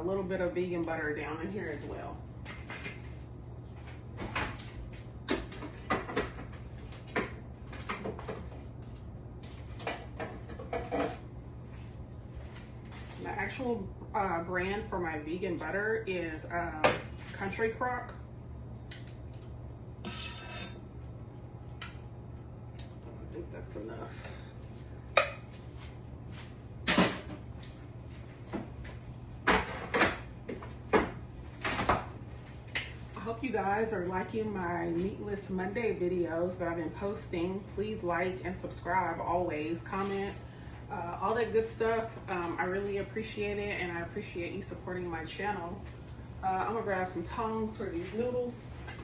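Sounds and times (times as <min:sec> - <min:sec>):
steady low hum: 0:00.0 - 0:49.0
kitchen knocks and clatters: 0:04.2 - 0:08.6, 0:09.7 - 0:11.3, 0:29.4 - 0:32.1.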